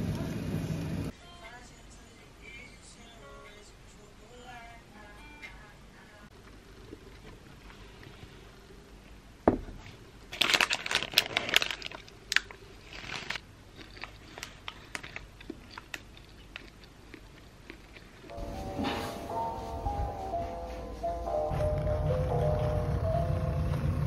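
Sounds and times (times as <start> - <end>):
music: 1.1 - 6.3, 18.3 - 24.0
paper wrapper crinkling: 10.3 - 16.8
chewing: 11.2 - 18.4.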